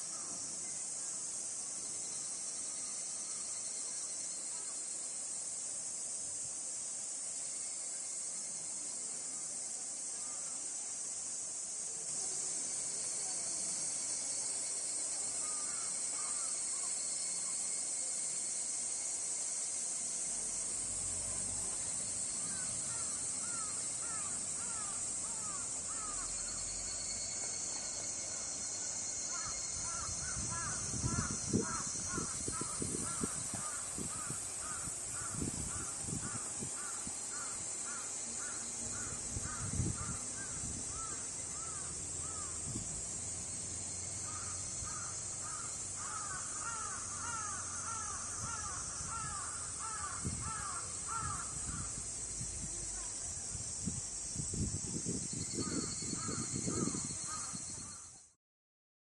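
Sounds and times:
insects droning: 0.0s - 58.4s.

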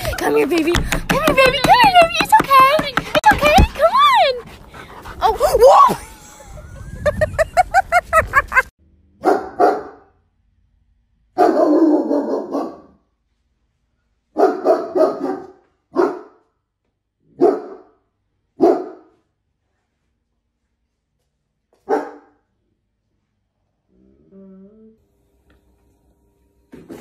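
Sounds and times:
dog barking: 9.2s - 10.1s, 11.4s - 13.0s, 14.4s - 16.4s, 17.3s - 18.0s, 18.6s - 19.1s, 21.8s - 22.4s.

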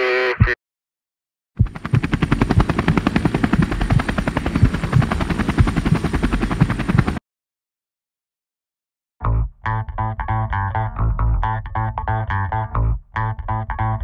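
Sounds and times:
rapid deep chopping beat: 1.6s - 7.2s.

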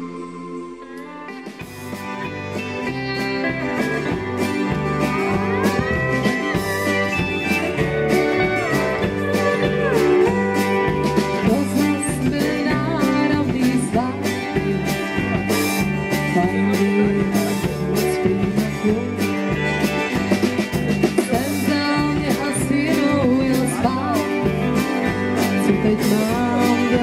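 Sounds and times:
guitar bending notes: 0.0s - 27.0s
live band playing: 0.0s - 27.0s
woman singing into a microphone: 11.3s - 14.7s, 16.1s - 19.7s, 21.2s - 27.0s.

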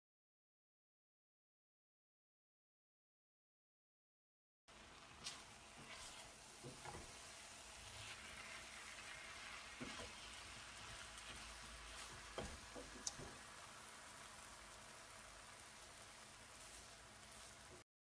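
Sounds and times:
pumpkin sizzling in a pot: 4.7s - 17.9s
wooden spoon tapping a pot: 12.3s - 13.4s.

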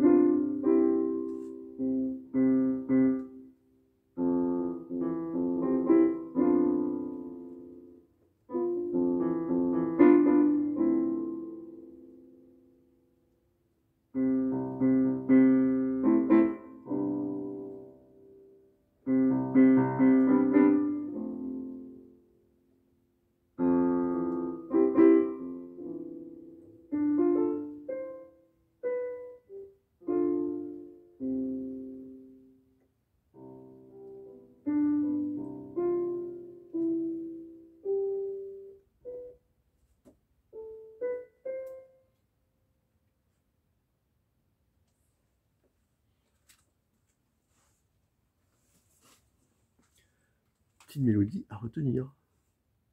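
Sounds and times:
electronic keyboard piano chords: 0.0s - 13.4s, 14.1s - 42.4s.

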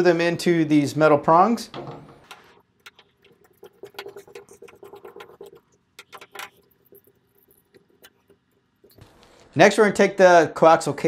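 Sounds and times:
threads clicking and scraping: 2.2s - 9.6s.

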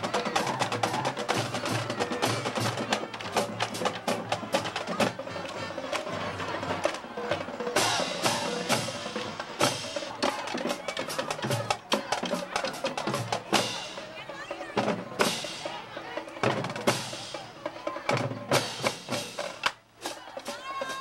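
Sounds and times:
quick sharp drum strikes: 6.8s - 13.9s.

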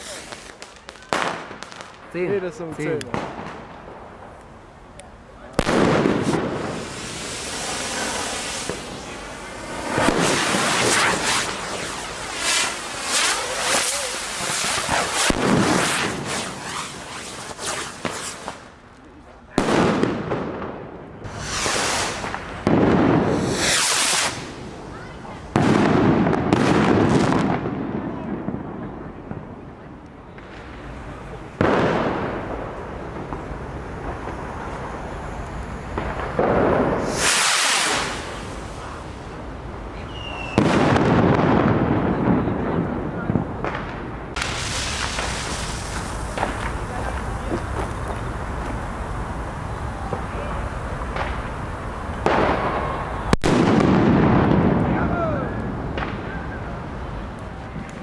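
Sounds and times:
firework hissing sparks: 0.0s - 4.4s, 5.6s - 18.9s, 21.2s - 27.6s, 30.6s - 41.3s, 44.3s - 53.4s.

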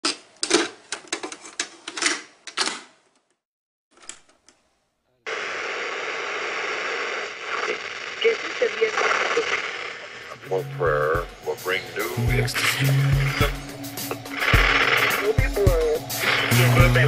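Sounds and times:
static hiss: 5.3s - 10.5s, 11.6s - 17.0s.

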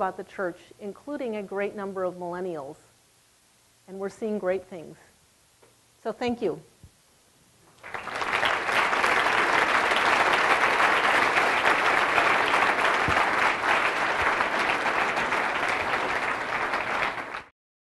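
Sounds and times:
audience applauding: 7.7s - 17.5s.

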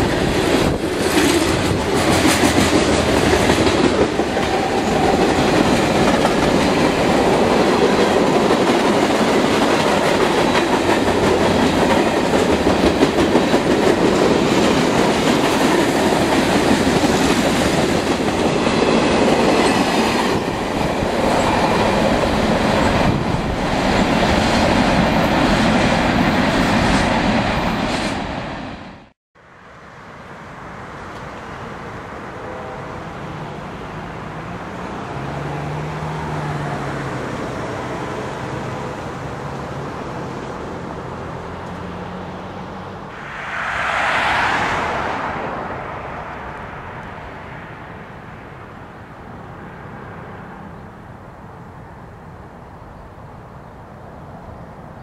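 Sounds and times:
train wheels clacking: 0.0s - 20.6s
freight cars rumbling past: 0.0s - 28.3s, 33.4s - 50.8s
distant diesel locomotive hum: 0.0s - 28.6s.

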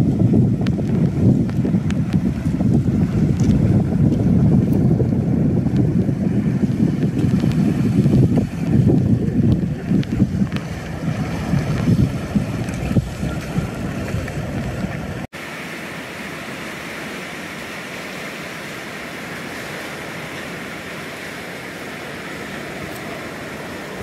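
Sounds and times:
wind buffeting microphone: 0.0s - 15.3s
ocean surf on rocky shore: 0.0s - 24.0s
running water: 0.0s - 24.0s.

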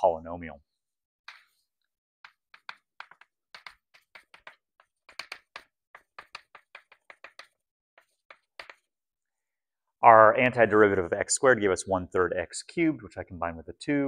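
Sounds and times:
chalk tapping and scraping on blackboard: 1.3s - 9.1s.

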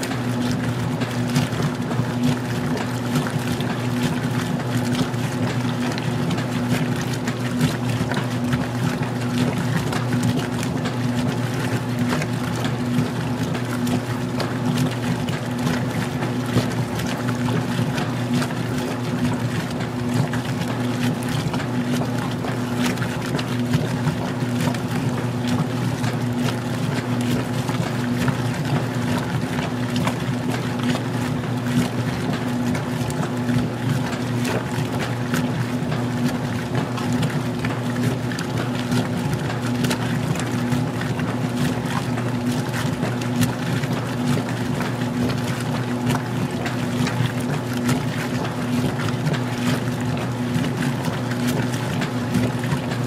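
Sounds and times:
washer motor hum: 0.0s - 53.0s
water churning: 0.0s - 53.0s.

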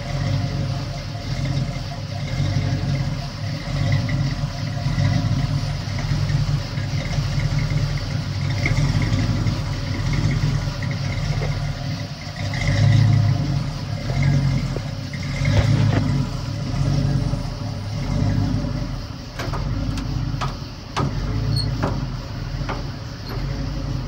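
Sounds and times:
truck engine idling: 0.0s - 24.0s
sharp clicks: 19.3s - 23.6s.

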